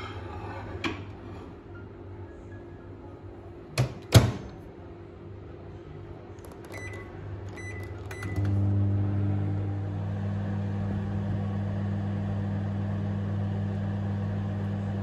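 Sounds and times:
microwave humming: 0:06.3 - 0:15.0
keypad beeps: 0:06.6 - 0:08.6.

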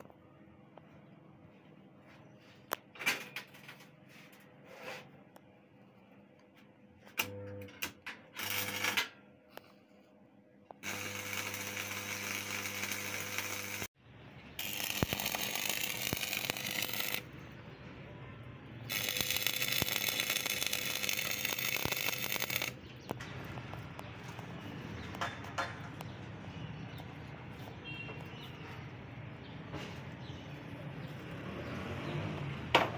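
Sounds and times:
welding arc crackling: 0:08.4 - 0:09.0, 0:10.8 - 0:14.0, 0:14.6 - 0:17.4, 0:18.9 - 0:23.2
welding arc strikes: 0:10.8 - 0:13.9, 0:14.6 - 0:17.3, 0:18.9 - 0:22.8.

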